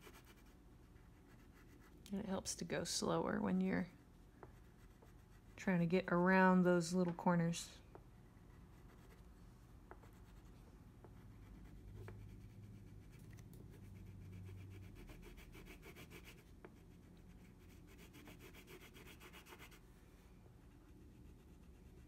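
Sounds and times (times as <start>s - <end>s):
crayon scribbling on paper: 13.8s - 19.8s.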